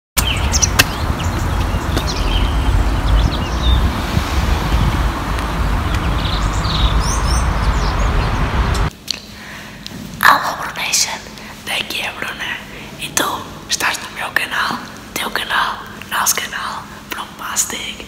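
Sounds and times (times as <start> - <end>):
bird chirps: 0.2 - 3.9, 5.7 - 8.8
wind buffeting microphone: 0.2 - 8.9.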